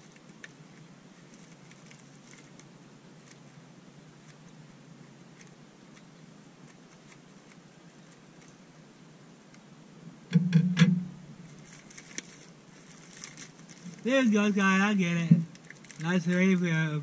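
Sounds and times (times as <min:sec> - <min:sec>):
plastic crackling: 0:00.0 - 0:03.5, 0:11.4 - 0:16.8.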